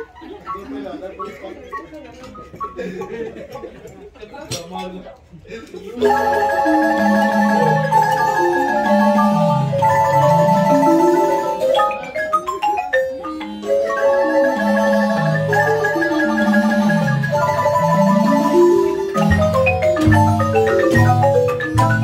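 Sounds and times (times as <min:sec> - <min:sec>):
marimba ensemble playing: 0:00.0 - 0:03.7, 0:06.0 - 0:22.0.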